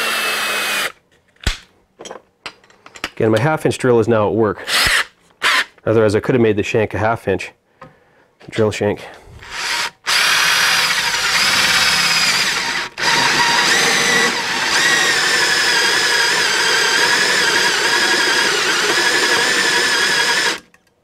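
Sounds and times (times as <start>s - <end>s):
electric drill motor whine: 0.0s - 0.9s, 9.4s - 20.7s
hole saw cutting metal: 0.0s - 0.9s.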